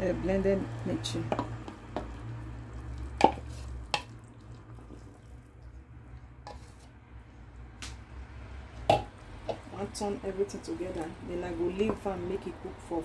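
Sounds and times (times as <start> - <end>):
low steady hum: 0.0 - 13.0
wooden spoon knocking: 1.2 - 2.1, 8.8 - 9.7
wooden spoon scraping bowl: 6.4 - 7.0.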